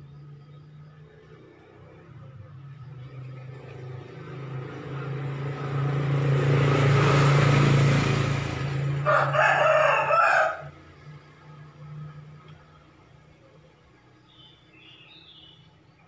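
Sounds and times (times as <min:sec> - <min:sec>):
vehicle passing: 0:00.0 - 0:16.0
rooster crowing: 0:09.0 - 0:10.8.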